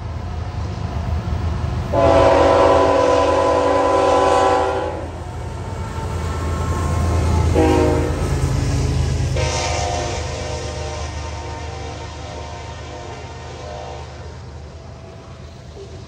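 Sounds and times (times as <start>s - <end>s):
train air horn chord: 1.9s - 5.2s, 7.4s - 8.3s, 9.4s - 14.4s.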